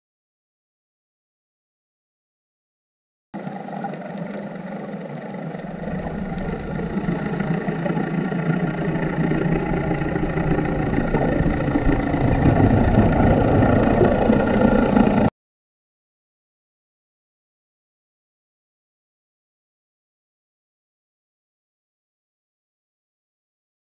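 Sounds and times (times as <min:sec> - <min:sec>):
muffled underwater rumble: 0:03.4 - 0:15.3.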